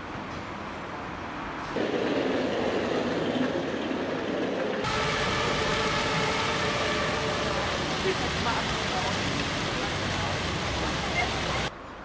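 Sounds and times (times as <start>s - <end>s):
city street noise: 0.0s - 12.0s.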